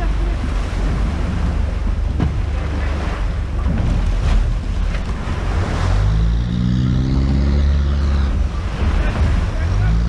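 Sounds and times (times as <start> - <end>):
surf washing around boat: 0.0 - 10.0
vehicle engine revving: 5.1 - 10.0.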